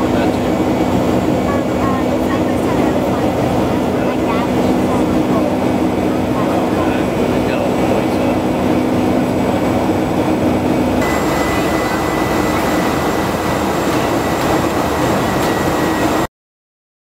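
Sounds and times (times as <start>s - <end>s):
jet airliner cabin noise: 0.0s - 16.3s
low hum: 4.6s - 16.3s.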